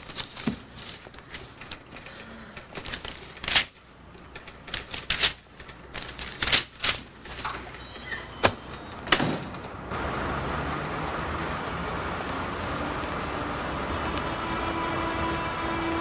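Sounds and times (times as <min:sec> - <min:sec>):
paper rustling and shuffling: 0:00.0 - 0:07.8.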